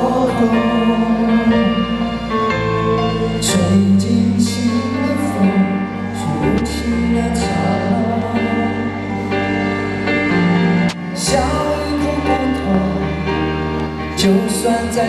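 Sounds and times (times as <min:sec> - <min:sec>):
live band playing: 0:00.0 - 0:15.0.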